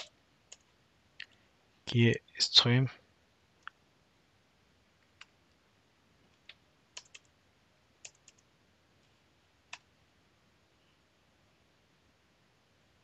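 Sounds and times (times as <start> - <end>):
faint room hiss: 0.0 - 13.0
keyboard keystroke clicks: 6.4 - 7.3.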